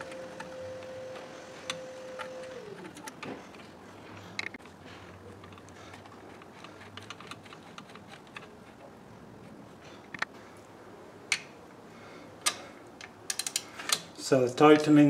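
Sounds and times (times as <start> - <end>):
hand tool clicking on screw: 5.4 - 8.6.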